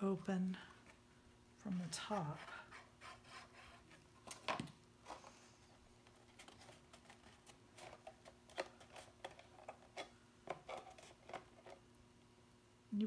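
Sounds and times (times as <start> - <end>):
paper crinkling: 6.0 - 11.8.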